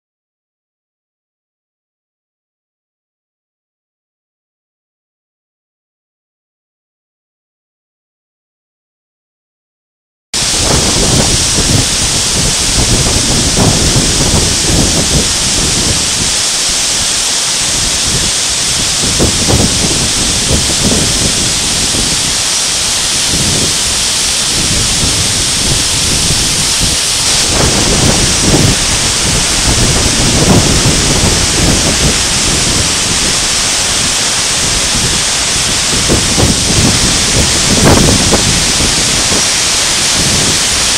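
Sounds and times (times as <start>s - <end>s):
waterfall roaring: 10.4s - 40.9s.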